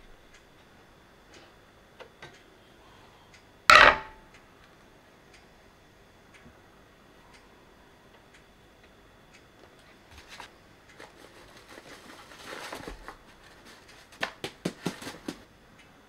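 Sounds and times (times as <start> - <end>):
glass bowl knocking on scale: 3.7 - 4.2.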